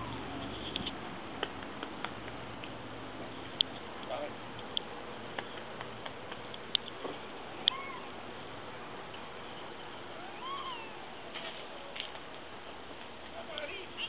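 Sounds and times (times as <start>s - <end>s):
meow-like animal calls: 7.7s - 8.1s, 10.2s - 12.0s.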